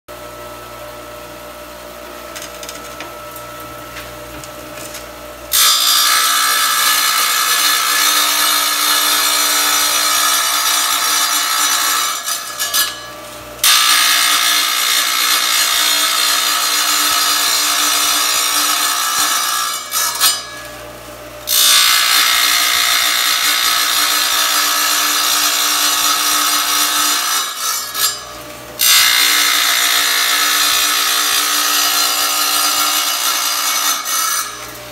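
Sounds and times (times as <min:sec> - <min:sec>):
tile saw motor humming: 0:00.2 - 0:34.9
saw blade grinding through tile: 0:05.5 - 0:20.9, 0:21.5 - 0:34.9.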